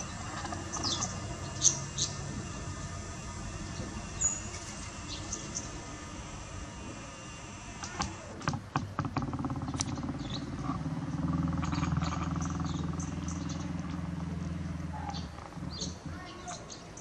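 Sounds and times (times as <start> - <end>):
faint bird chirps: 0.0 - 6.2
sharp clicks: 0.0 - 16.1
low motor hum: 0.0 - 17.0.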